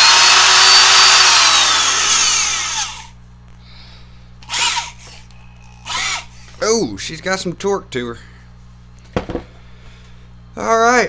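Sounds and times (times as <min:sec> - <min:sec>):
electric drill motor whining: 0:00.0 - 0:03.2, 0:04.4 - 0:06.6.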